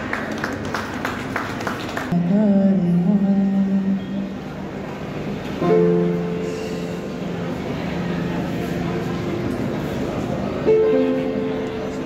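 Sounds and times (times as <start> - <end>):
man singing long-held notes: 2.1 - 4.5
grand piano accompaniment: 5.4 - 12.0.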